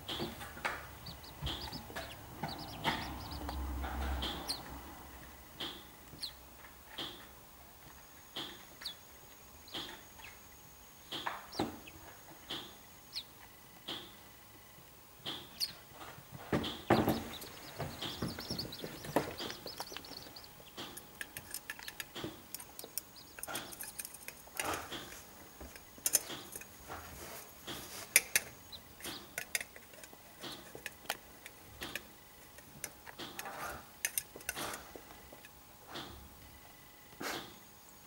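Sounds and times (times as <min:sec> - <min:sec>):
chicks' bills tapping a plastic dish: 0:00.0 - 0:04.8, 0:16.4 - 0:26.6.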